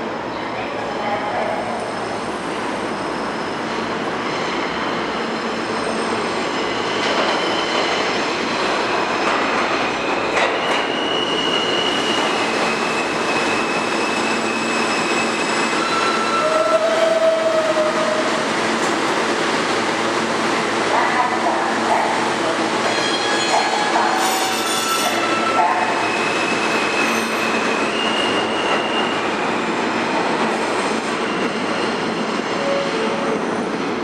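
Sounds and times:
subway train rumble: 0:00.0 - 0:34.0
wheel and brake squeals: 0:04.8 - 0:08.0, 0:10.3 - 0:16.7, 0:22.9 - 0:29.2.

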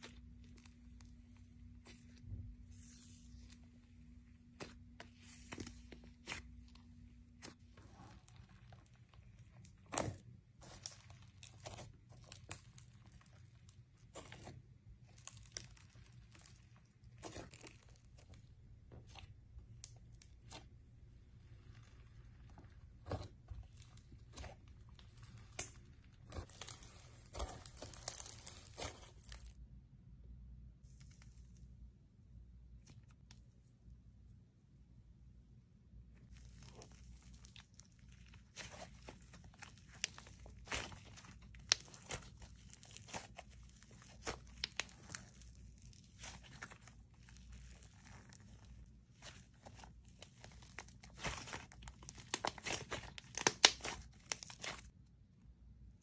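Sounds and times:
fingers squishing slime: 0:36.2 - 0:54.9.

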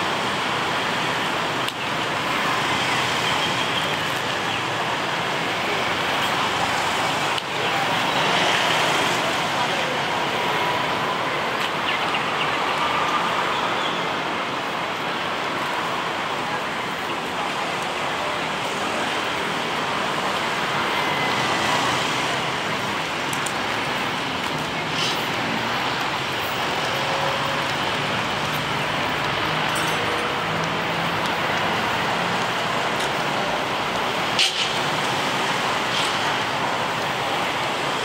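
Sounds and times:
city traffic noise: 0:00.0 - 0:38.0.

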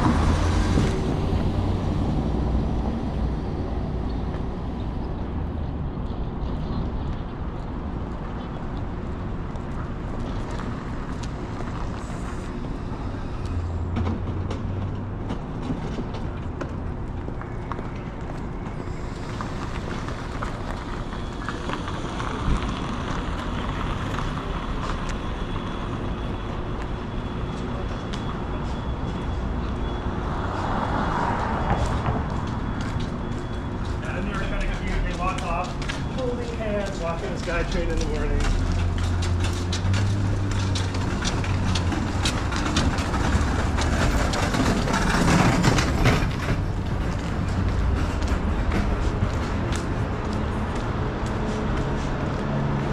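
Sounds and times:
vehicle passing by: 0:00.0 - 0:06.0, 0:28.6 - 0:52.9
street traffic noise: 0:00.0 - 0:52.9
sharp clicks and clatters: 0:37.4 - 0:49.9.

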